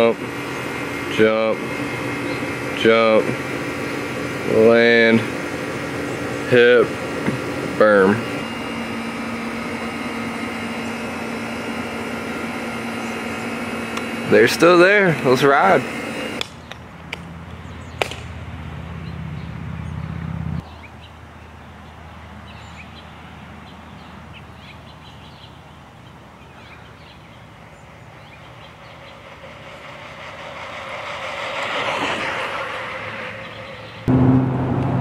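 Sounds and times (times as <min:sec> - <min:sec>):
bike tyres on asphalt: 0:27.7 - 0:34.2.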